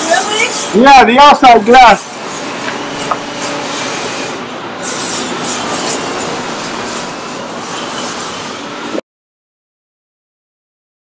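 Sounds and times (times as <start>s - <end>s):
loud rushing noise: 0.3s - 9.0s.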